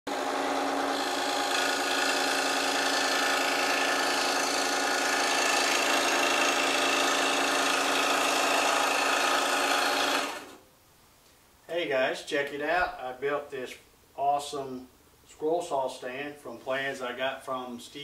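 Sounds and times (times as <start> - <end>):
motor hum: 0.1 - 10.6
scroll saw cutting wood: 0.1 - 10.6.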